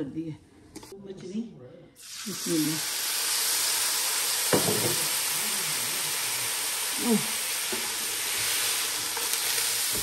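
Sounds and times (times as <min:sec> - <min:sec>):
food sizzling in a pan: 0:02.0 - 0:10.0.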